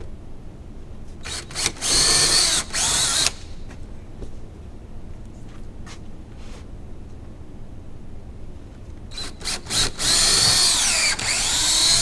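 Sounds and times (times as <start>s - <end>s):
cordless drill boring into wall: 1.2s - 3.4s, 9.1s - 12.0s.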